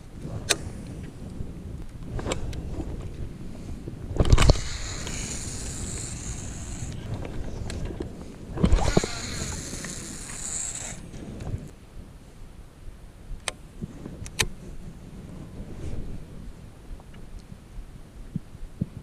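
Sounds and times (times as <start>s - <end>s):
wind: 0.0s - 19.0s
high hiss: 4.4s - 7.0s, 8.8s - 11.1s.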